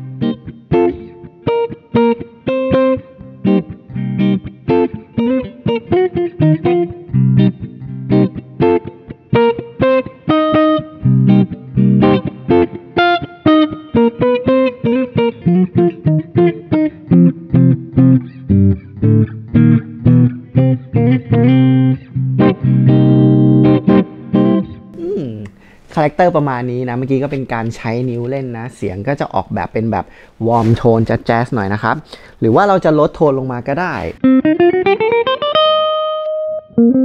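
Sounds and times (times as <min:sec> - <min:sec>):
electric guitar fingerpicked jazz: 0:00.0 - 0:25.8, 0:33.9 - 0:37.0.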